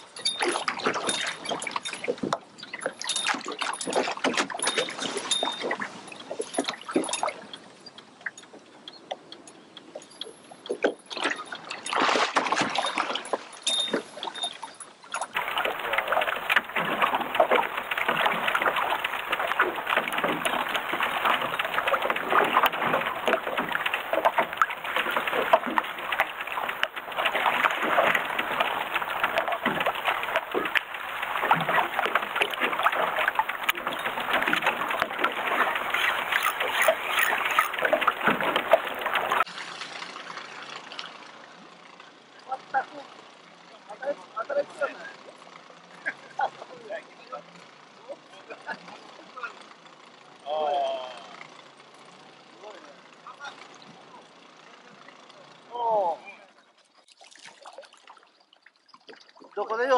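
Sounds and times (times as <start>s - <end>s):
waves slapping against boat hull: 10.7s - 14.1s, 15.2s - 39.5s
rush of water: 11.3s - 41.2s.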